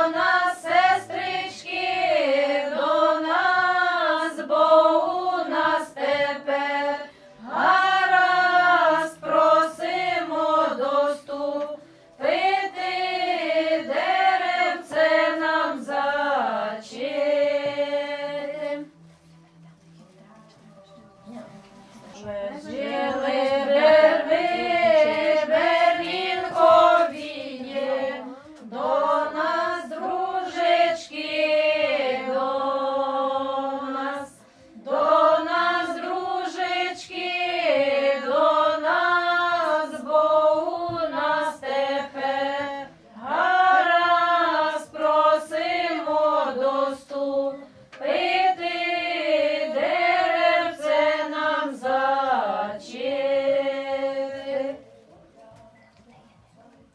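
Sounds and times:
women singing unaccompanied: 0.0s - 19.0s, 20.4s - 55.7s.

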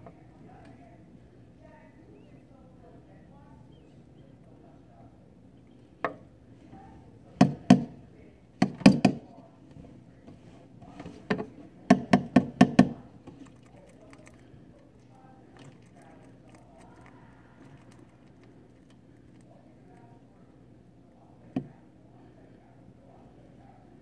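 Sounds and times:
plastic tube knocking on wood: 8.6s - 9.2s, 11.9s - 13.0s.

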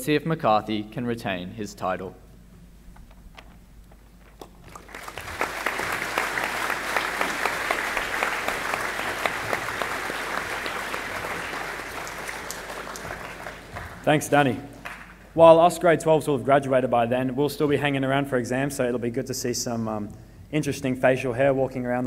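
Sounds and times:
audience clapping: 4.2s - 15.4s.

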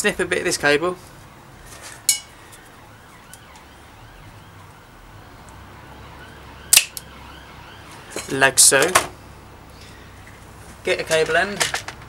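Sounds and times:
cable cutters snapping: 6.7s - 7.1s.

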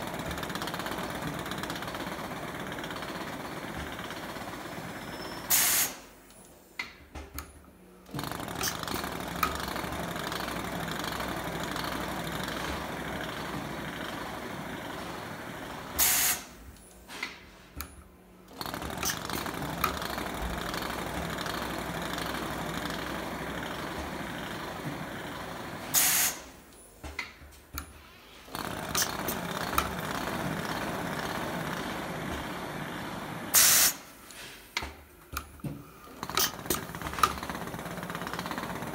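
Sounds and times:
machine running: 18.5s - 26.6s, 28.3s - 34.1s, 36.0s - 38.9s
compressed air hisses: 33.6s - 34.1s
machine clicks: 34.8s - 38.9s.

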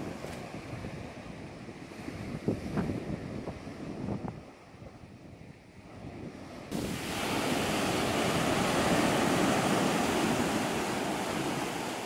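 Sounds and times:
sea surf breaking on shingle: 6.7s - 12.0s.

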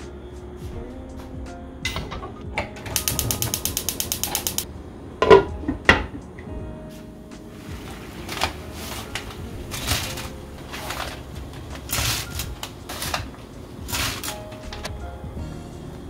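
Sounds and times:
crackling bursts: 7.4s - 15.0s.

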